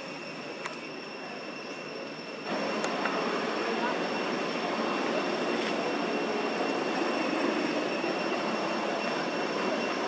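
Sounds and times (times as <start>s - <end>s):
outdoor background noise: 0.0s - 10.0s.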